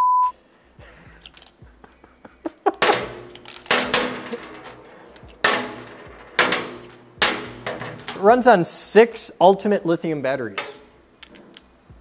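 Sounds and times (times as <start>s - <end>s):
batteries clacking on metal table: 1.2s - 1.7s, 2.8s - 8.5s, 10.6s - 11.7s.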